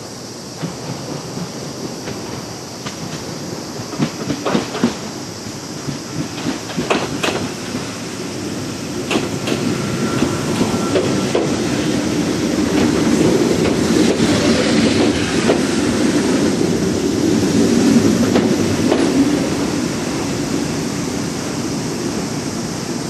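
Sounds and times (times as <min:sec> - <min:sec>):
wheels clicking over rail joints: 0:00.6 - 0:07.9, 0:09.0 - 0:19.7
electric train running: 0:00.6 - 0:23.0.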